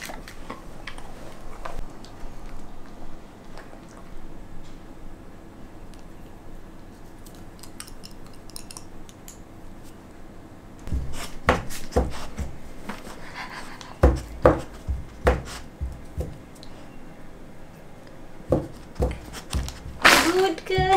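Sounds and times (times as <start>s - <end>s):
dog knocking against a hand: 14.0s - 16.4s.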